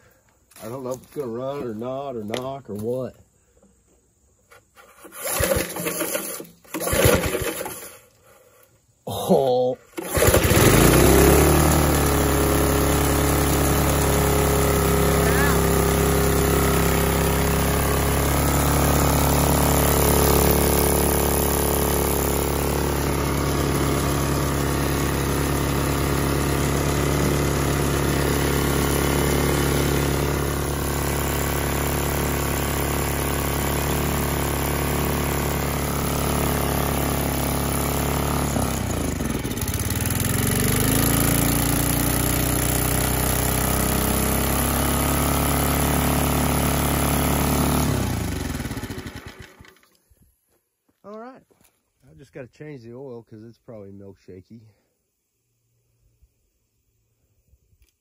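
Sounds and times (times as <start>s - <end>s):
small engine running: 4.7s - 8.7s, 9.9s - 50.1s.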